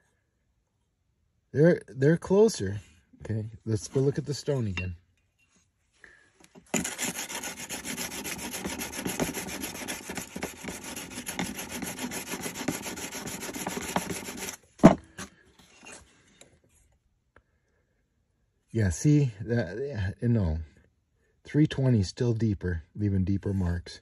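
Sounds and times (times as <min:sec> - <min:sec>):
sharpening stone scraping blade: 0:06.7 - 0:14.6.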